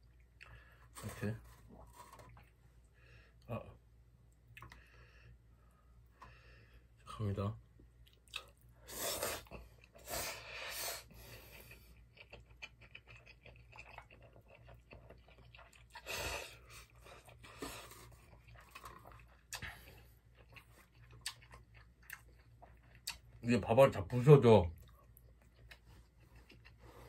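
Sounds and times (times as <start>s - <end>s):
chewing: 11.4s - 23.4s, 24.8s - 27.0s.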